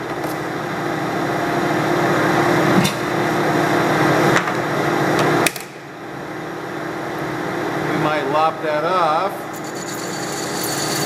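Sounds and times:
metal lathe running: 0:09.5 - 0:11.0.

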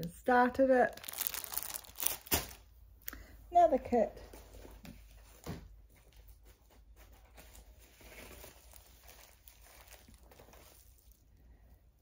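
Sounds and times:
plastic packaging crinkling: 0:00.8 - 0:02.7, 0:07.3 - 0:11.4.

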